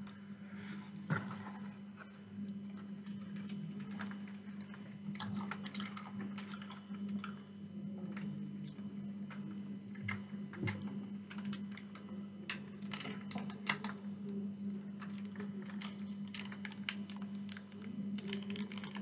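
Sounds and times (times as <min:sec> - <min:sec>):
steady low hum: 0:00.0 - 0:19.0
plastic sachet crinkling: 0:15.0 - 0:19.0.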